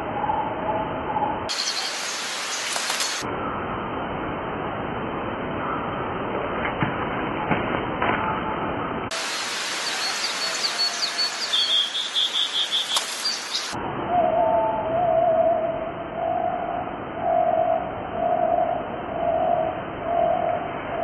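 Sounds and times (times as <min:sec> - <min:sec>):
high bird chirps: 0:01.5 - 0:03.2, 0:09.3 - 0:13.8
outdoor background hiss: 0:01.5 - 0:08.0, 0:08.8 - 0:21.0.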